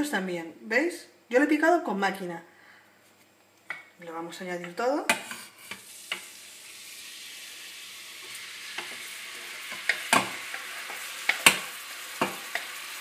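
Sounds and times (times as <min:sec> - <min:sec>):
vegetables sizzling in hot oil: 0:05.4 - 0:13.0.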